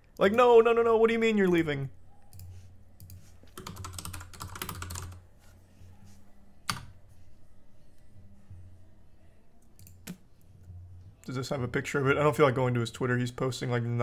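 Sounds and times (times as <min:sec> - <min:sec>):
keyboard typing: 0:02.3 - 0:05.2, 0:06.6 - 0:06.9.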